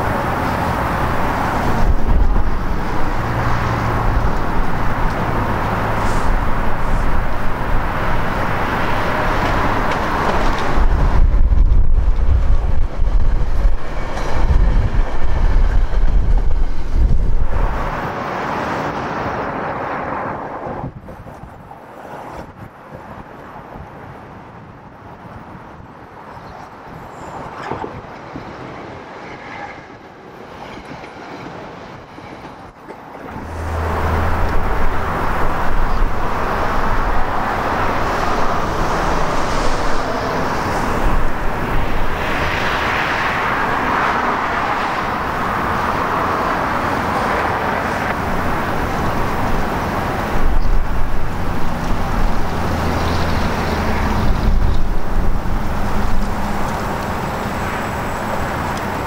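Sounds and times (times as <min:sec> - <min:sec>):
wind on microphone: 0:00.0 - 0:18.1, 0:20.5 - 0:28.9, 0:33.3 - 0:59.0
electric train rolling past: 0:00.0 - 0:59.0
road traffic passing: 0:00.0 - 0:59.0.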